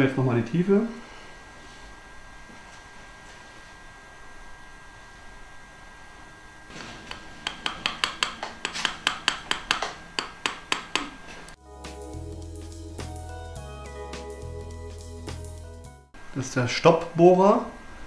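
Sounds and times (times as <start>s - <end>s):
background music with bass line: 11.6s - 16.1s.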